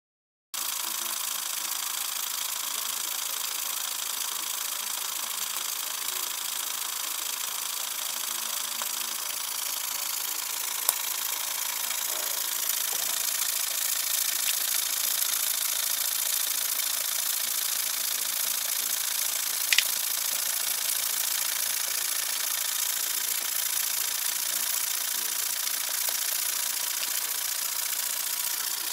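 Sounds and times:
mechanical rattle: 0.6s - 28.9s
toy steam engine hissing: 0.6s - 28.9s
sharp clicks: 14.1s - 15.3s, 19.6s - 20.0s.

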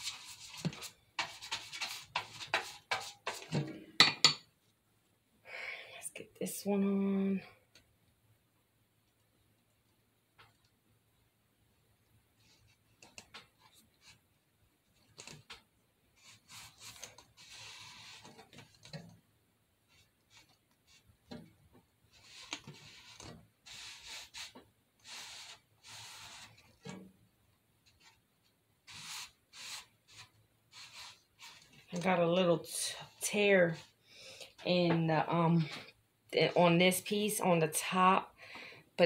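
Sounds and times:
hands rubbing paper: 0.0s - 3.4s, 16.2s - 19.0s, 19.9s - 21.1s, 22.1s - 26.8s, 28.9s - 32.1s.

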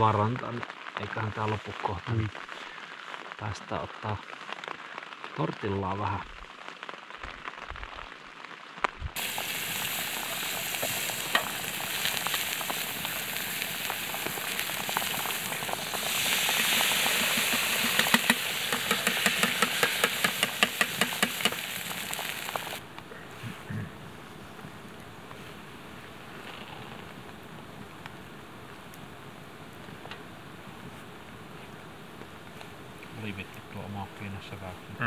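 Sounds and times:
food sizzling in a pan: 6.4s - 22.8s
ticks and clicks: 17.5s - 21.6s.

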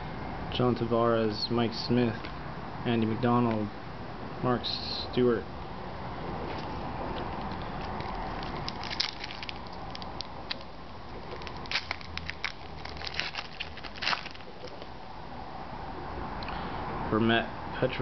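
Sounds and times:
foil wrapper tearing and crinkling: 7.4s - 14.8s.

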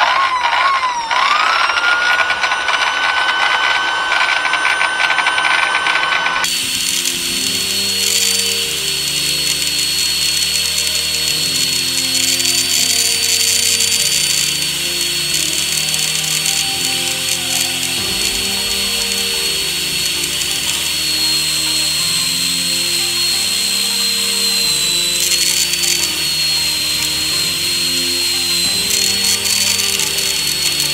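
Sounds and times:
electric drill motor whine: 0.0s - 30.9s
background music: 6.5s - 30.9s.

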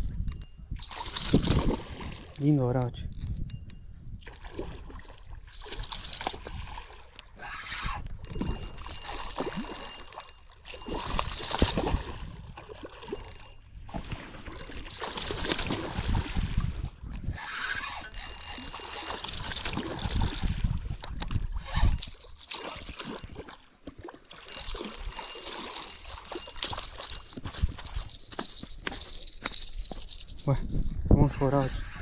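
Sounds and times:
river water splashing: 4.2s - 7.4s, 9.0s - 16.8s, 21.6s - 30.4s.

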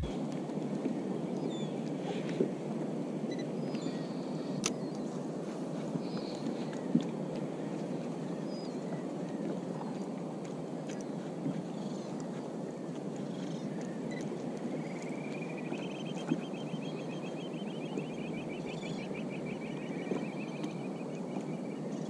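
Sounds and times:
sea water: 0.0s - 22.0s
wind: 0.0s - 22.0s.

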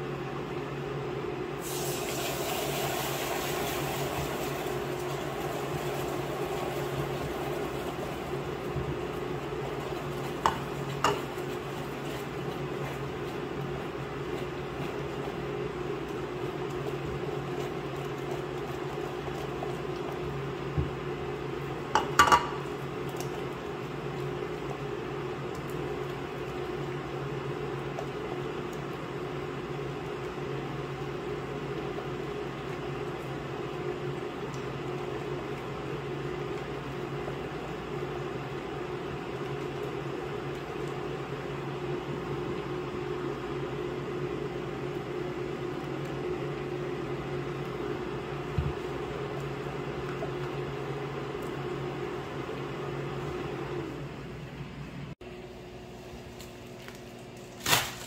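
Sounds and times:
spatula stirring in saucepan: 7.8s - 27.0s.

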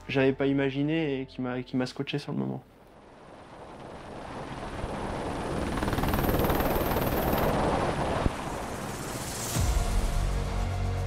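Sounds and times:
helicopter rotor and engine: 3.0s - 9.7s.

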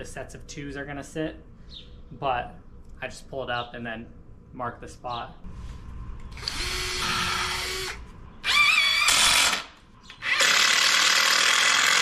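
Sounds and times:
cordless drill running under load: 6.3s - 12.0s.

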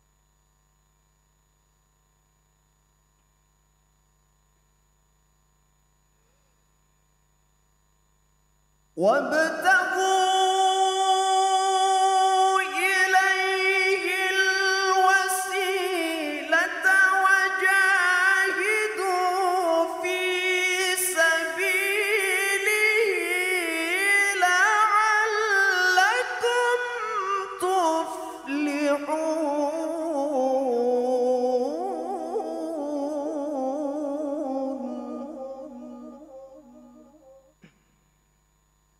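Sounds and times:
man reciting melodically: 9.0s - 37.2s.

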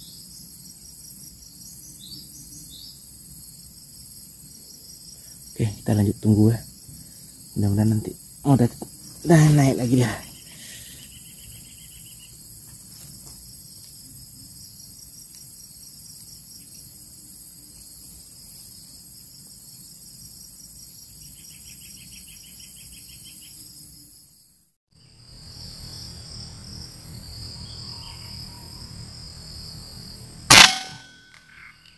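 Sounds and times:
insects droning: 0.0s - 31.9s
trilling insect chirp: 0.0s - 31.9s.

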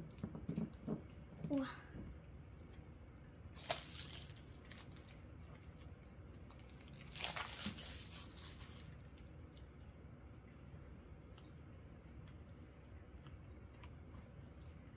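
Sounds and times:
plastic sleeves crinkling: 3.5s - 9.6s.

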